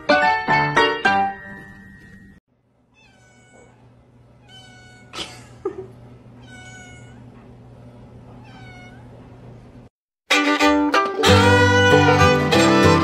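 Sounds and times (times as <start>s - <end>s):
kitten meowing: 3.0s - 5.1s, 6.4s - 7.2s, 8.4s - 9.1s.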